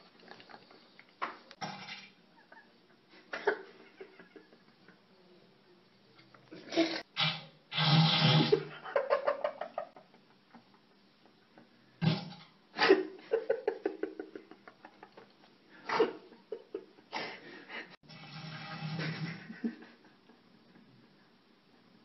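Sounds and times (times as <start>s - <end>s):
man farting: 6.8s - 8.7s, 12.0s - 12.4s.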